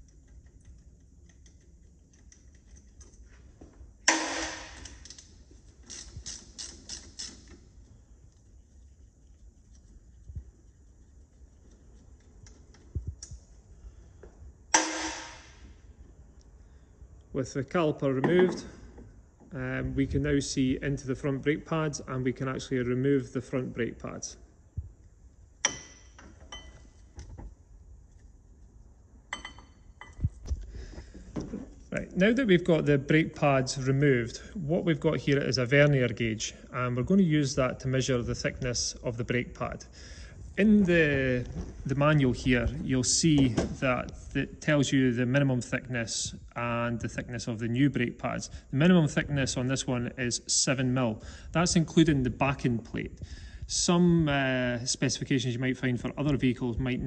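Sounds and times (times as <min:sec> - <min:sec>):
ratchet clicks: 0:04.8 - 0:07.7.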